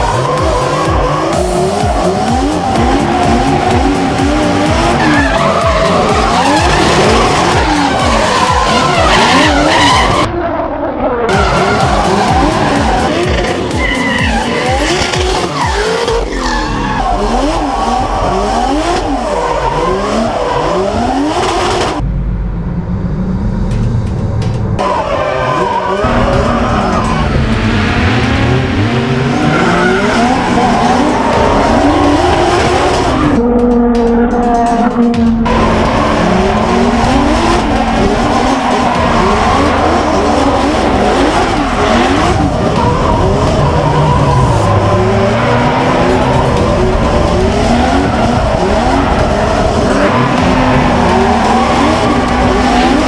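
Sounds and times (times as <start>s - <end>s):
tyres screeching: 0.0s - 10.3s, 11.3s - 21.2s
car engines revving: 0.0s - 53.0s.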